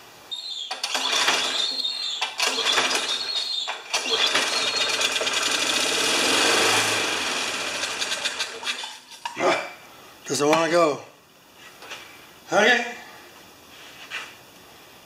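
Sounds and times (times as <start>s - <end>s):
mower engine cranking with pull starter: 0.7s - 9.2s.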